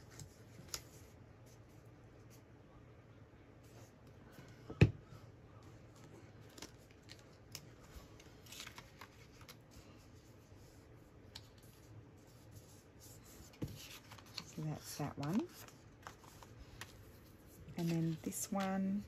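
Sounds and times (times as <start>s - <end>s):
paper rustling: 11.3s - 19.0s.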